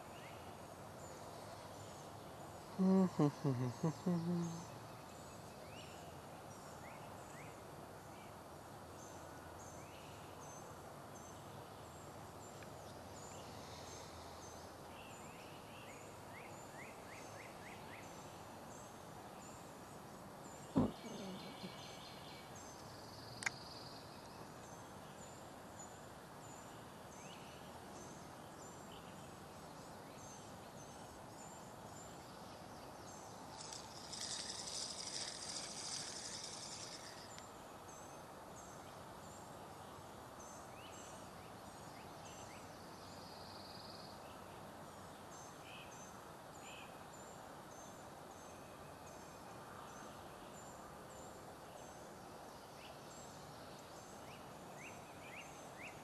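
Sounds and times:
bird chirps and calls: 20.8s - 21.9s
steady hiss: 31.2s - 38.8s
high hissing rustle: 33.5s - 37.4s.

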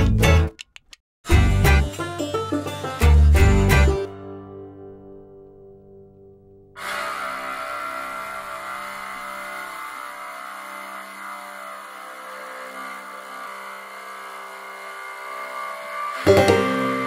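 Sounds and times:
long held music chord: 16.3s - 17.0s.

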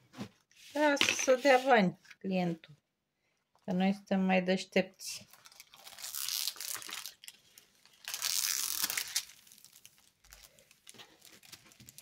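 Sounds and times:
plastic film crinkling: 5.2s - 12.0s.

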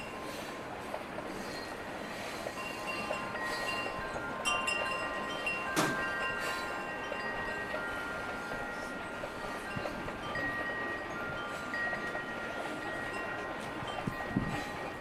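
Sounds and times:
wind chimes ringing: 0.0s - 0.5s, 1.3s - 15.0s.

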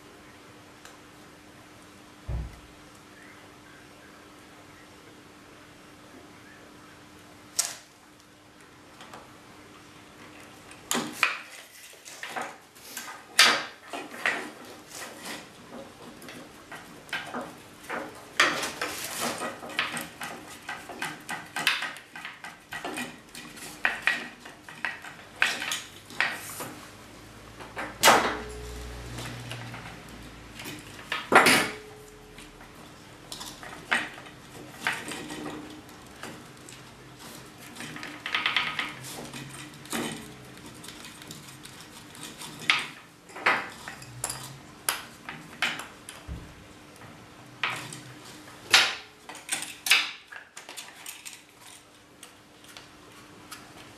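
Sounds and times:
faint steady hum: 0.0s - 11.4s, 22.8s - 42.6s.

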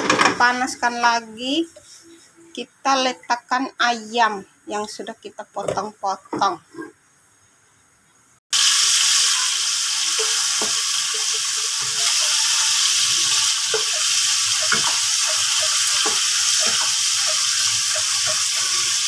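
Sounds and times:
chicken sizzling in hot oil: 8.5s - 19.0s.

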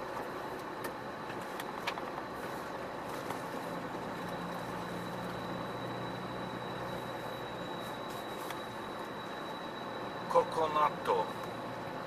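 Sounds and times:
truck engine and road noise: 0.0s - 12.0s.

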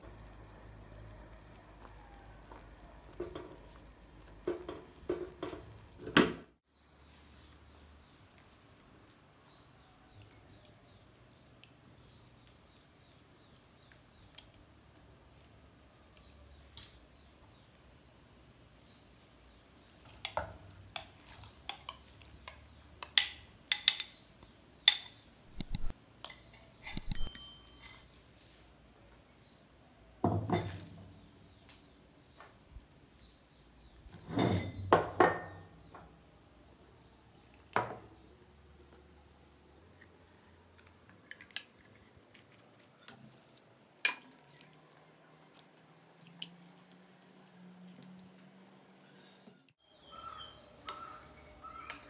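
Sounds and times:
sharp clinks against steel pan: 26.9s - 28.1s.

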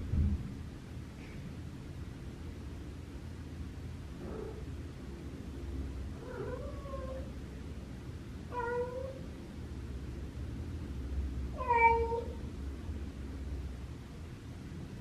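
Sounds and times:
cat meowing: 6.2s - 7.4s, 8.5s - 9.2s, 11.6s - 12.4s.

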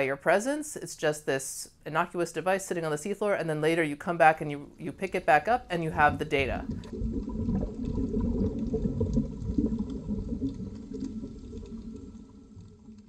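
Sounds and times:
muffled rumble of moving water: 5.7s - 13.0s.

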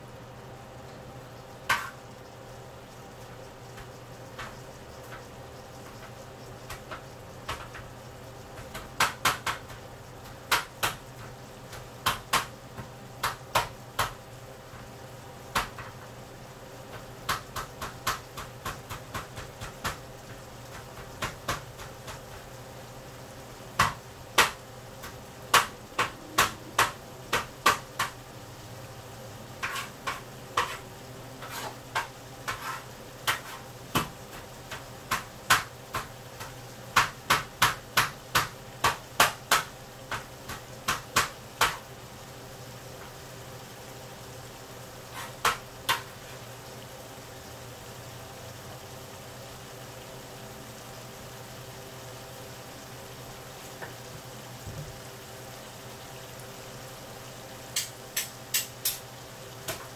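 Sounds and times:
beef sizzling in frying pan: 0.0s - 59.9s.

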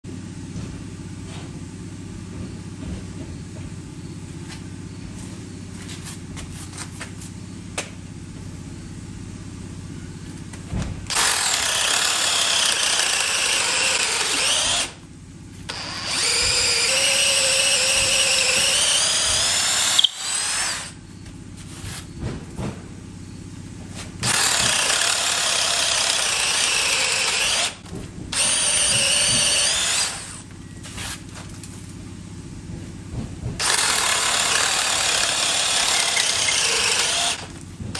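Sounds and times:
high motor whine: 8.3s - 31.3s, 33.6s - 37.9s
power drill boring through wood: 11.1s - 15.0s, 15.7s - 21.0s, 24.2s - 30.5s, 33.6s - 37.6s.

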